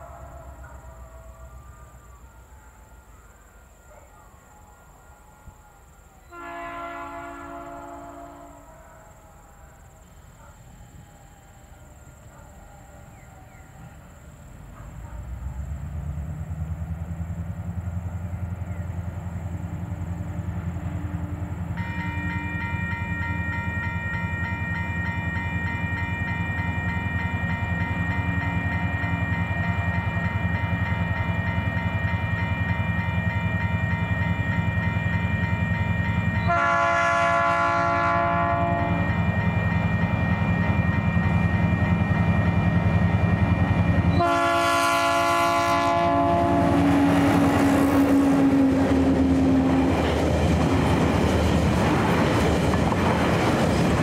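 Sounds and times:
train horn blasts: 0.0 - 1.1, 4.2 - 10.0, 18.4 - 50.2
locomotive engine drone: 0.0 - 54.0
wheels clattering on rails: 46.8 - 54.0.

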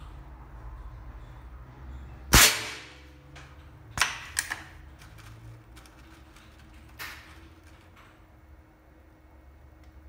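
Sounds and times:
air rifle shot cracking: 2.3 - 3.0.

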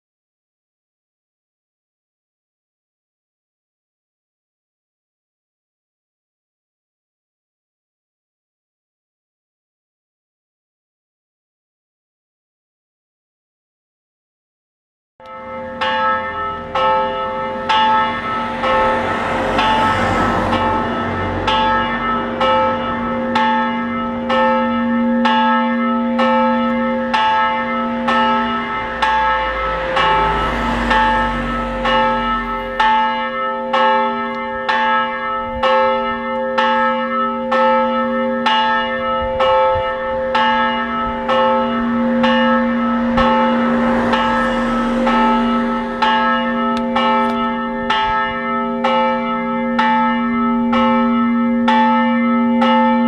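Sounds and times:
church bell ringing: 15.2 - 53.0.

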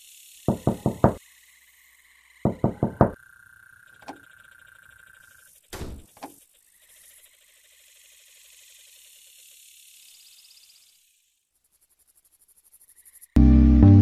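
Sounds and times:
knuckles knocking on wood: 0.5 - 1.2, 2.5 - 3.2
dull thump: 5.8 - 6.3.

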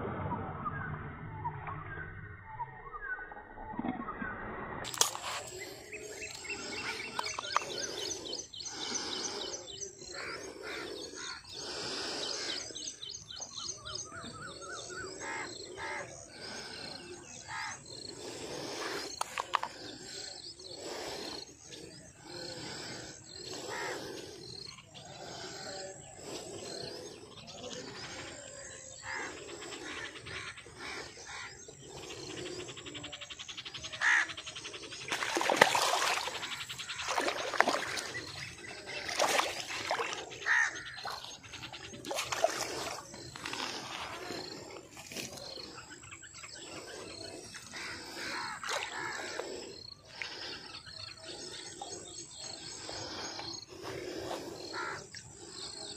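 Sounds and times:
fish splashing in water: 4.8 - 8.2, 35.0 - 44.4, 47.8 - 49.4
small birds chirping: 4.9 - 55.9.

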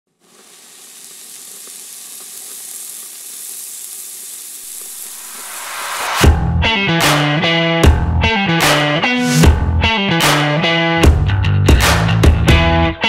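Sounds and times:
sizzling hiss with crackles: 0.1 - 6.2
distorted electric guitar music: 4.8 - 13.0.

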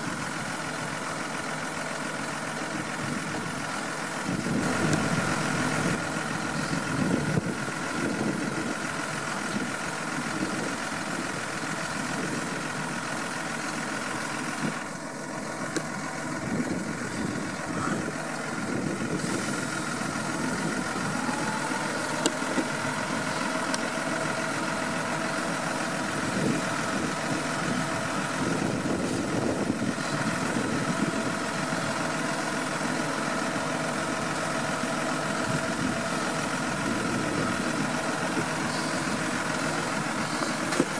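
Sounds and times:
tractor diesel engine running: 0.0 - 40.9
high whine: 13.6 - 33.6.

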